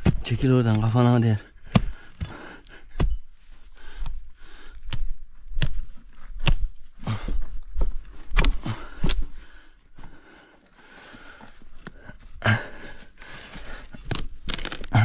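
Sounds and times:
hand tool chopping into roots: 1.6s - 3.3s, 4.8s - 6.8s, 8.3s - 9.3s, 14.0s - 15.0s.

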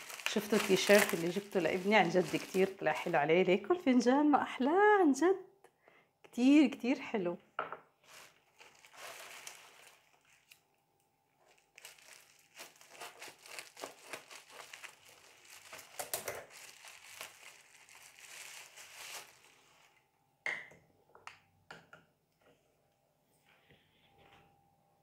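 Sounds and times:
bubble wrap crinkling: 0.0s - 3.7s, 8.0s - 10.6s, 11.4s - 20.0s.

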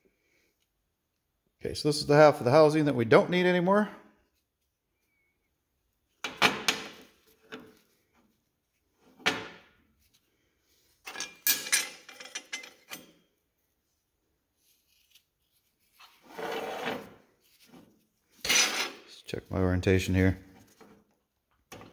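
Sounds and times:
metal parts clattering on workbench: 11.0s - 13.2s
metal clinks and scrapes: 11.0s - 13.3s.

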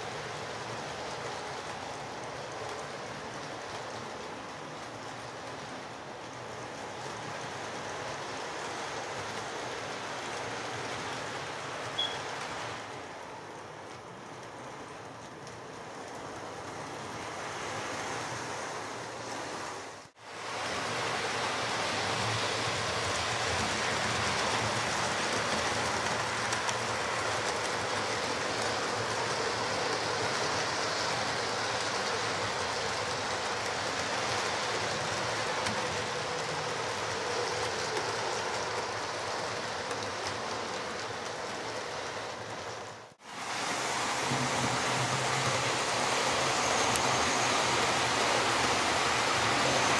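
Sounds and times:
model train wheels rattling on track: 20.5s - 43.2s.

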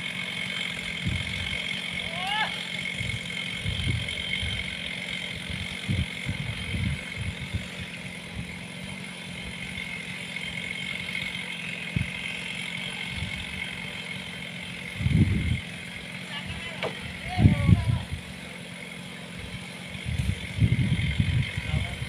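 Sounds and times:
chainsaw engine idling: 0.0s - 22.0s
wind buffeting microphone: 5.9s - 7.6s, 15.0s - 15.6s, 20.0s - 22.0s.

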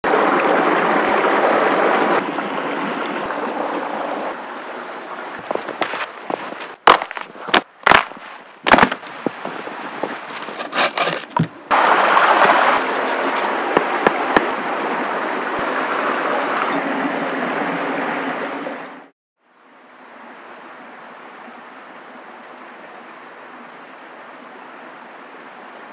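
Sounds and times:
dead branches cracking and snapping: 6.7s - 9.1s.

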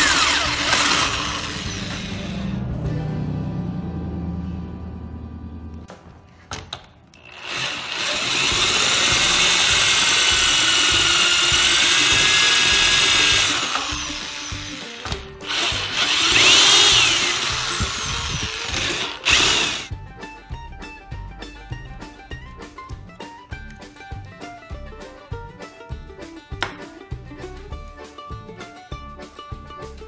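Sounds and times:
drill whining through plastic: 0.0s - 2.5s, 7.2s - 19.9s.

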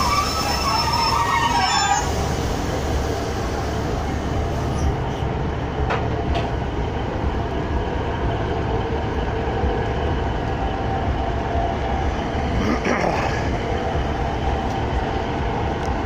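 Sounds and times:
train diesel engine idling: 0.0s - 16.0s.

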